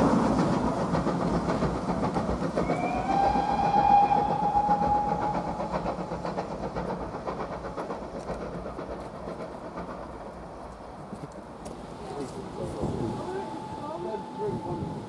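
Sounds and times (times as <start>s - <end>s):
steam train rumble: 0.0s - 15.0s
steam locomotive whistle: 2.6s - 5.8s, 12.8s - 15.0s.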